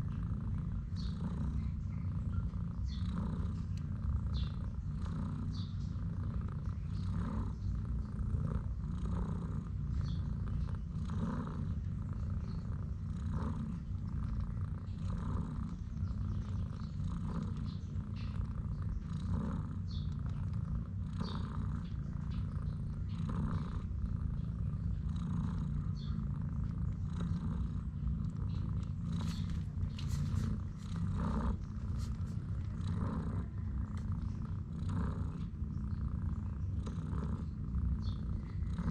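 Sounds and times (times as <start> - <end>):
cat purring: 0.0 - 38.9
faint clicks: 33.9 - 34.3.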